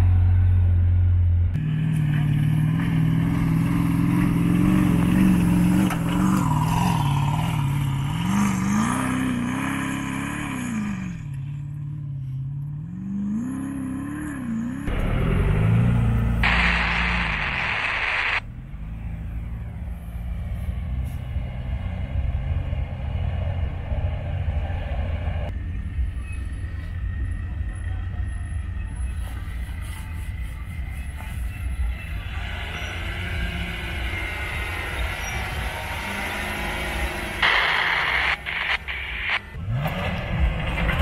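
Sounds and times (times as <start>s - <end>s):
truck engines low rumble: 0.0s - 41.0s.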